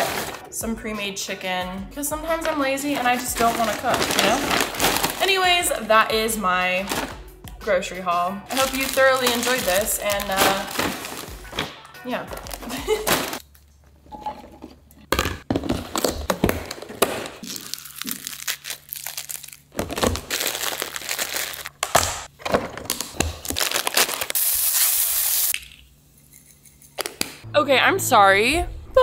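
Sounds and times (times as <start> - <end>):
salad greens crinkling: 3.0 - 5.4, 8.5 - 11.4, 16.0 - 21.8, 22.9 - 24.9.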